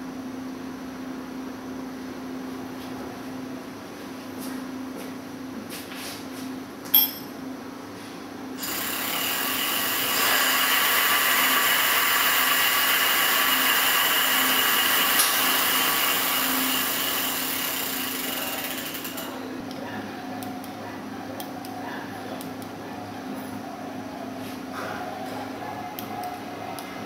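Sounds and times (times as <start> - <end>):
electric hub motor whine: 8.4 - 24.5.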